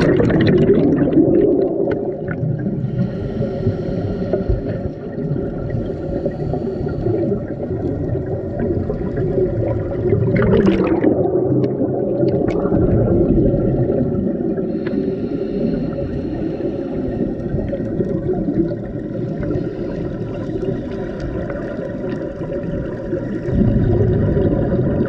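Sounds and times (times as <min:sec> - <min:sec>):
regulator exhaust bubbles gurgling: 0:00.0 - 0:02.9, 0:07.0 - 0:14.8, 0:17.3 - 0:25.0
muffled underwater rumble: 0:00.0 - 0:25.0.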